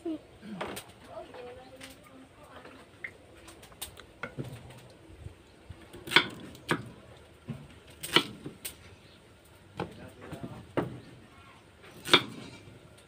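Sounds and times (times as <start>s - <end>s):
knife chopping on wooden board: 12.0s - 12.5s.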